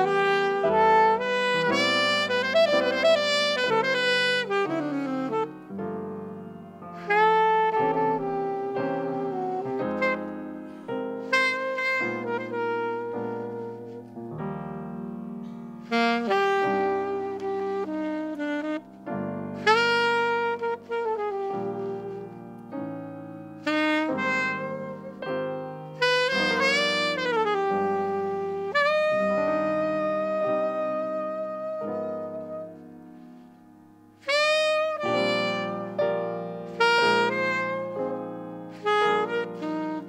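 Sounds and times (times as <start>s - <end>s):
piano chords: 0.0s - 40.0s
saxophone jazz ballad: 0.0s - 40.0s.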